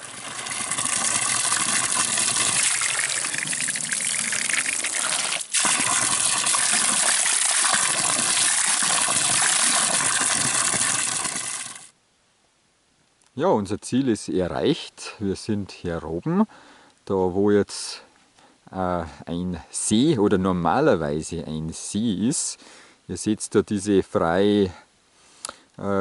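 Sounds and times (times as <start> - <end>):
water filling plastic bottle: 0.0 - 11.9.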